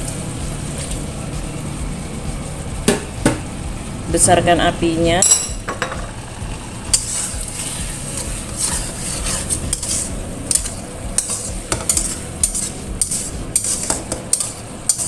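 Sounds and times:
sauce sizzling: 0:00.0 - 0:15.0
metal spatula scraping a wok: 0:06.9 - 0:15.0.

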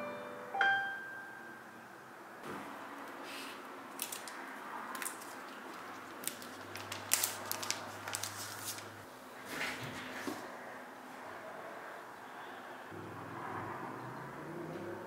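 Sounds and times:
plastic clicks and rustles: 0:03.9 - 0:08.4.

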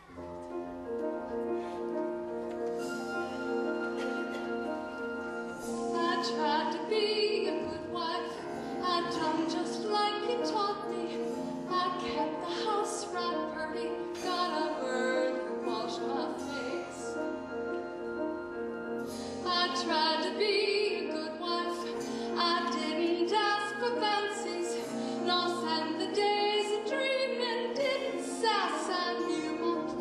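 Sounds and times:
held instrumental accompaniment: 0:00.0 - 0:30.0
woman singing with vibrato: 0:05.8 - 0:17.3, 0:19.4 - 0:30.0.

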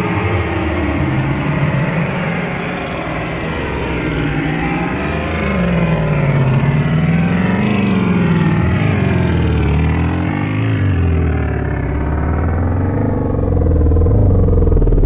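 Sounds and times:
low wavering drone: 0:00.0 - 0:15.0
thick wash of noise: 0:09.3 - 0:15.0.

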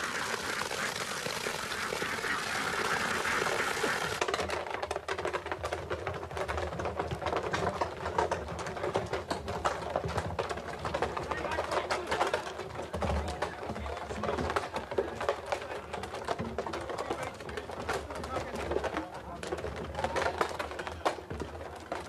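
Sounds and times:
liquid gushing onto grass: 0:00.0 - 0:04.2
barrels rolling on concrete: 0:00.0 - 0:22.0.

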